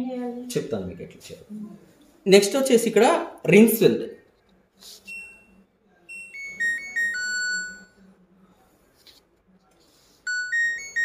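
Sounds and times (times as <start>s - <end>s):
dishwasher beep: 6.1s - 8.0s
electronic chime: 6.1s - 8.0s.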